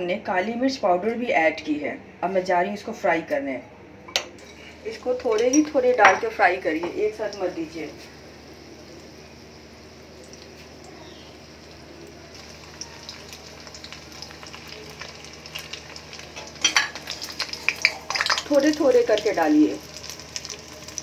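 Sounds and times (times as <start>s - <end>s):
food sizzling in hot oil: 4.4s - 21.0s.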